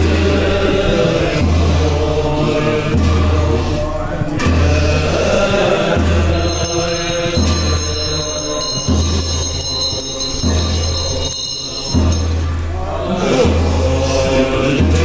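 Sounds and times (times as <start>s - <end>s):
monks chanting: 0.0s - 15.0s
deep drum beat: 4.4s - 12.6s
high metallic ringing: 6.3s - 12.9s.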